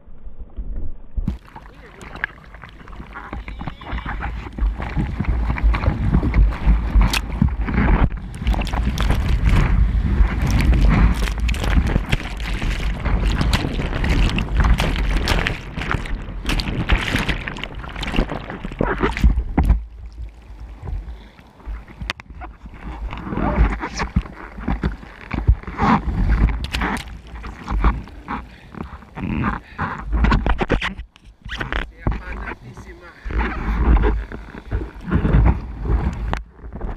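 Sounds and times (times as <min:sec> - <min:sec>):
water splashes: 0:01.2 - 0:36.9
churning wave whitewash: 0:01.4 - 0:19.5.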